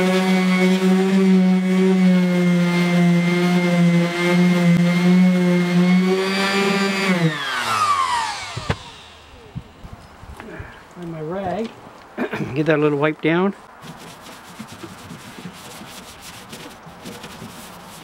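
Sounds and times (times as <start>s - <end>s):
orbital sander running: 0.0s - 10.0s
sander spinning down: 0.0s - 10.0s.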